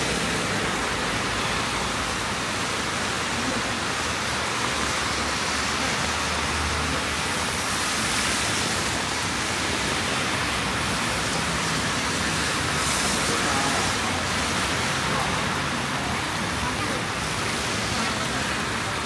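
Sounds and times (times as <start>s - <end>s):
steady rain hiss: 0.0s - 19.0s.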